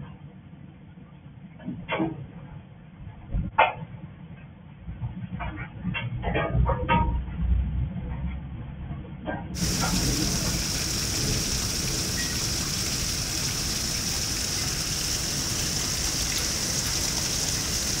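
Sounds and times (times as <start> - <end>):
heavy rain pouring: 9.6 - 18.0.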